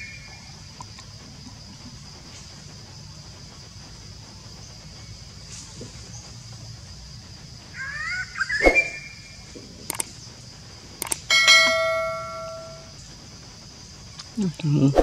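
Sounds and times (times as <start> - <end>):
high insect hum: 0.0 - 15.0
mouse clicks: 11.0 - 11.2
bright bell ding: 11.3 - 12.9.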